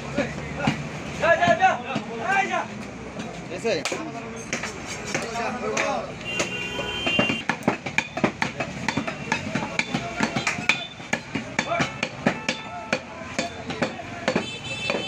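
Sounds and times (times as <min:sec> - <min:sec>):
knife chopping meat on wood: 0:03.9 - 0:15.0.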